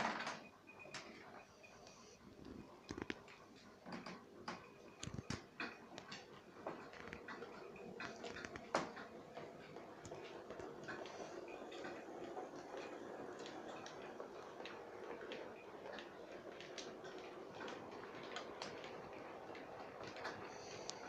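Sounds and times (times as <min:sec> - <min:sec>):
wheels clicking over track: 0:05.3 - 0:21.0
model train running hum: 0:08.8 - 0:21.0.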